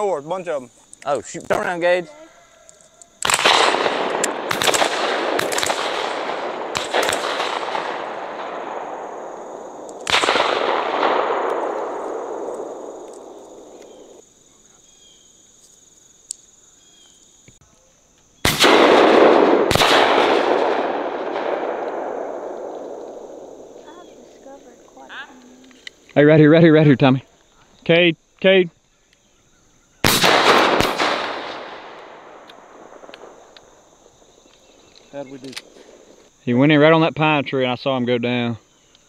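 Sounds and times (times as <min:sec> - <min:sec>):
shotguns firing with echo: 0:03.2 - 0:14.2, 0:18.4 - 0:24.4, 0:30.0 - 0:34.4.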